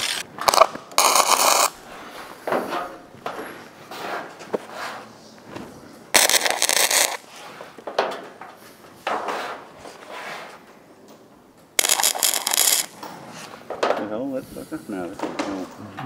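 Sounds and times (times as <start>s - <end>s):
welding arc crackling: 0.0s - 1.8s, 6.1s - 7.3s, 11.8s - 13.0s.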